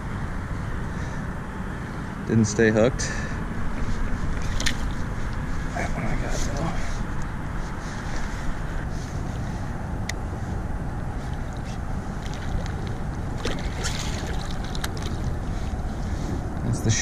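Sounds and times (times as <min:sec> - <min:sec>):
water noise: 0:02.9 - 0:09.7, 0:10.3 - 0:17.0
wind buffeting microphone: 0:03.3 - 0:17.0
splashy bursts: 0:12.2 - 0:15.2.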